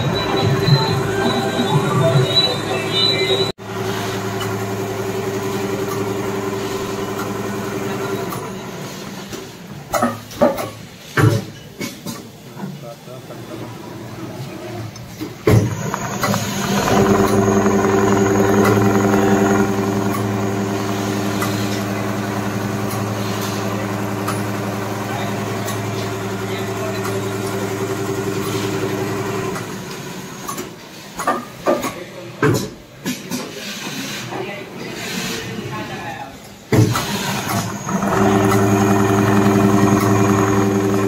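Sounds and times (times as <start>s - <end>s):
sewing machine humming: 3.6s - 9.2s, 15.4s - 30.5s, 36.9s - 41.0s
sharp mechanical clicks and knocks: 15.4s - 33.4s.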